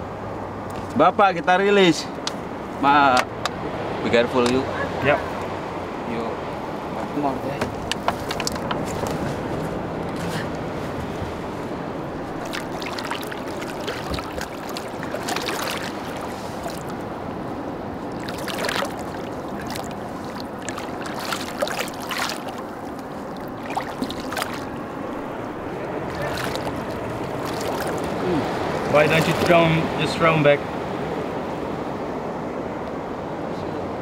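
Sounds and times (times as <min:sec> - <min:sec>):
water splashing against boat: 0:06.8 - 0:30.8.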